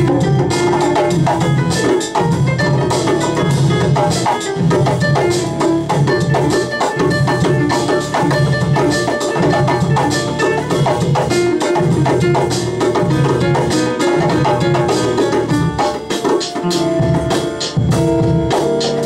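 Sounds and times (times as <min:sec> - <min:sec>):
hand drums rhythm: 0:00.0 - 0:19.0
plucked melodic notes: 0:00.0 - 0:19.0.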